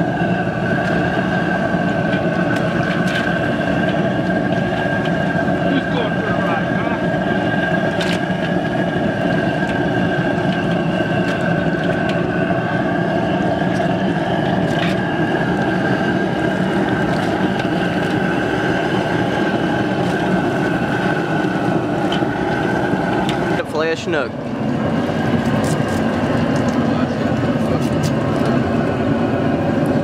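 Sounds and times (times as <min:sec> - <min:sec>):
gas burner rushing: 0:00.0 - 0:30.0.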